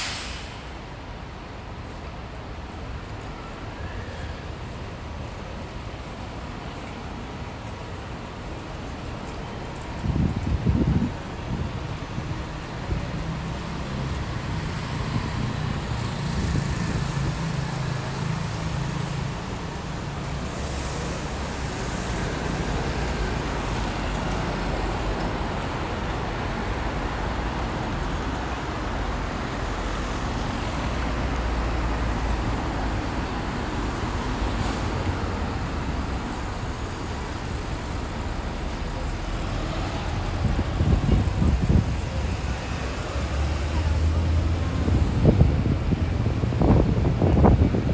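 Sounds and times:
passing traffic: 0.0 - 47.9.

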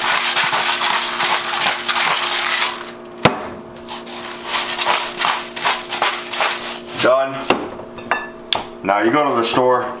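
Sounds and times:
spice mill grinding: 0.0 - 3.0, 4.3 - 6.9.

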